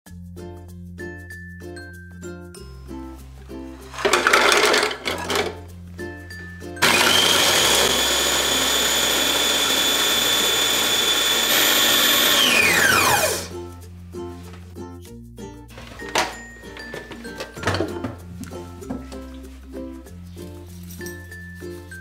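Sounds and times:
cookies clattering into plastic bowl: 0:03.9 - 0:05.6
food processor motor whining: 0:04.0 - 0:05.5, 0:06.8 - 0:13.5.

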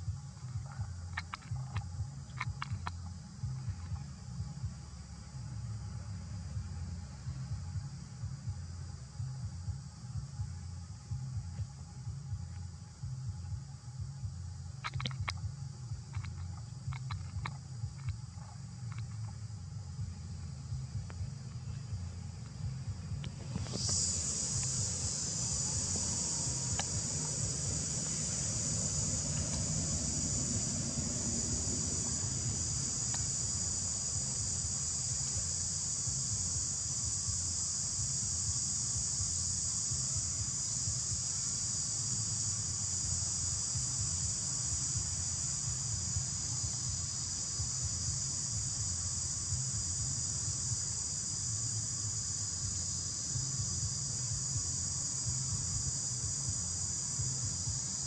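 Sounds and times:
low rumble: 0:00.0 - 0:35.5
high-pitched insect chorus: 0:00.0 - 0:58.0.

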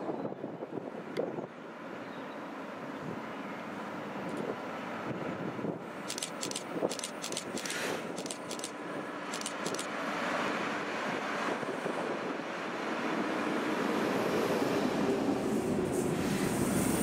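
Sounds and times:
diesel locomotive engines droning: 0:00.0 - 0:17.0
sharp clicks: 0:06.1 - 0:09.9.

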